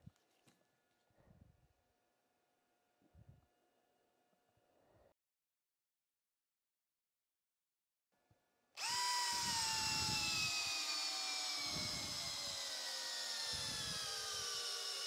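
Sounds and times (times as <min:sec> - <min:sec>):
cordless drill whining: 0:08.8 - 0:15.0.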